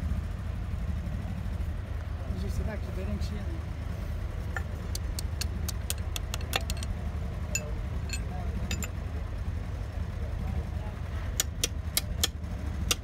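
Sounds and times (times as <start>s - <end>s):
steady low rumble: 0.0s - 13.0s
metal parts and tools clinking: 5.4s - 6.9s, 7.5s - 9.0s.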